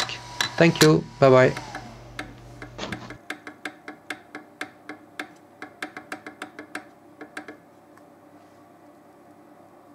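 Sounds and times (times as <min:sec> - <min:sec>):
printer motors ticking: 0:00.0 - 0:04.2.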